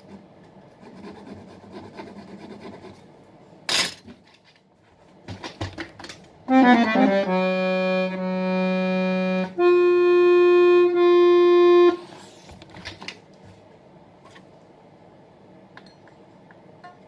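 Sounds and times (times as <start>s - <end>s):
accordion held notes: 6.5s - 12.4s.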